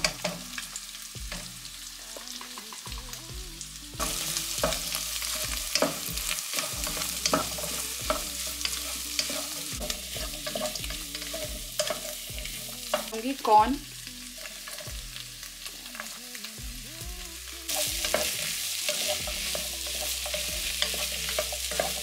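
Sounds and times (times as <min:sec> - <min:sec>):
vegetables and egg sizzling in oil: 0:00.0 - 0:22.0
wooden spatula scraping a pan: 0:17.7 - 0:22.0.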